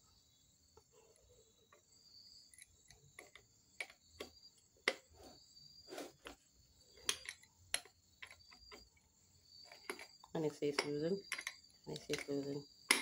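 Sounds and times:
wrench clicking and scraping on metal: 7.0 - 8.9, 9.6 - 13.0.

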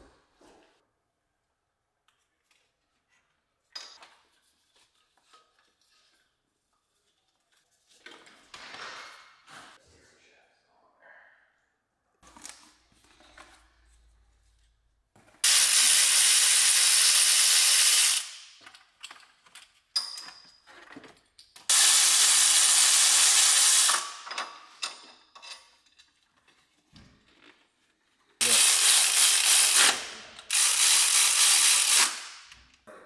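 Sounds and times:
power ratchet whirring: 15.4 - 18.3, 21.7 - 24.2, 28.4 - 32.4.

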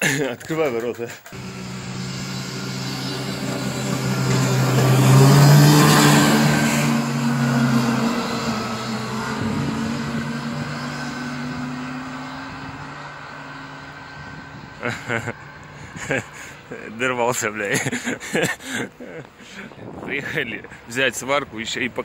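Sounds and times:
snowmobile engine revving past: 1.4 - 16.5.

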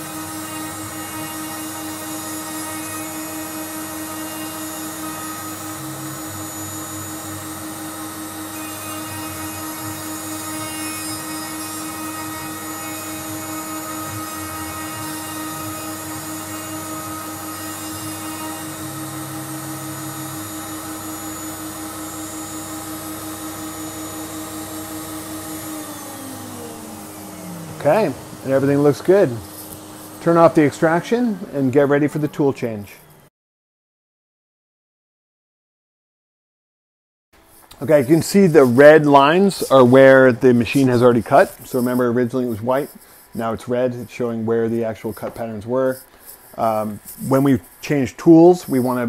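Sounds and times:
cnc router cutting wood: 0.0 - 33.3
vacuum cleaner running: 0.0 - 33.3.

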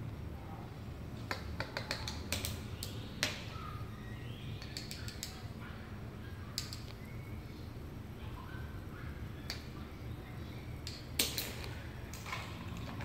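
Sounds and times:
toy knocking on ceramic tiles: 1.3 - 2.6.

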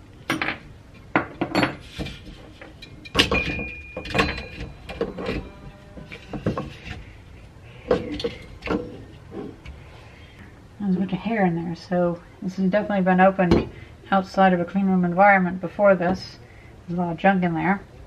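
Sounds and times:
metal clinks and knocks: 0.3 - 7.0.

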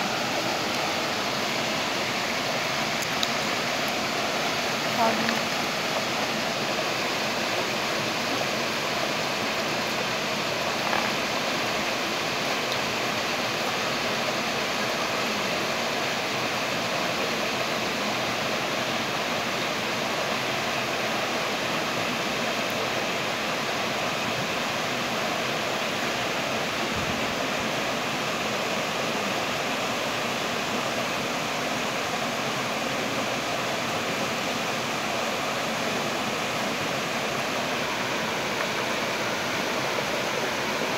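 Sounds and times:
stream rushing over rocks: 0.0 - 40.9.

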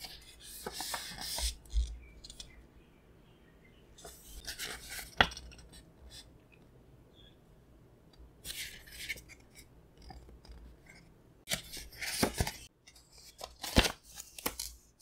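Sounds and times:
paper pages rustling: 0.0 - 2.5, 11.5 - 14.8.

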